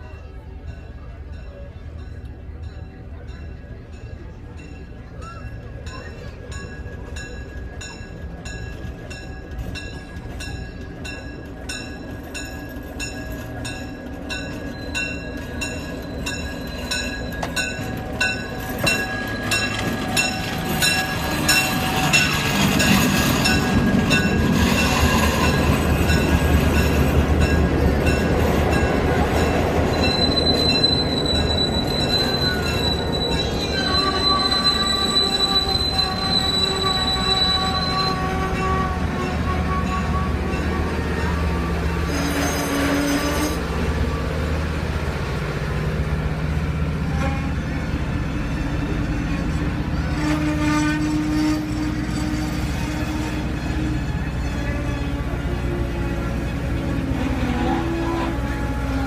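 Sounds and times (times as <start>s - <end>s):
locomotive engine rumbling: 0.0s - 59.0s
steel wheels squealing on rails: 0.0s - 59.0s.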